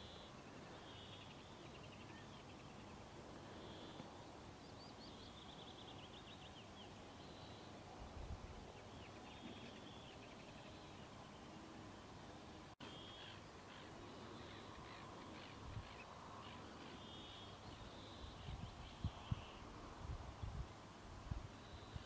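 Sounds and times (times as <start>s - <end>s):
background hiss: 0.0s - 22.0s
terns calling: 12.8s - 19.8s.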